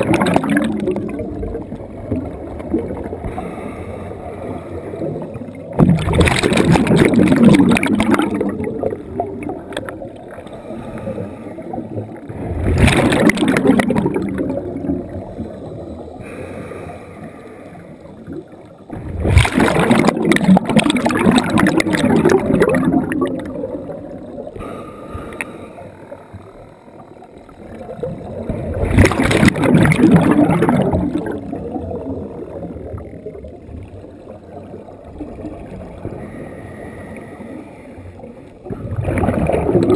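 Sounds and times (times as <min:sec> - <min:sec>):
bubbling bursts of exhaled air: 0:00.0 - 0:39.9
diver breathing through regulator: 0:03.2 - 0:05.2, 0:10.4 - 0:12.8, 0:16.1 - 0:18.3, 0:24.5 - 0:26.4, 0:36.0 - 0:38.4.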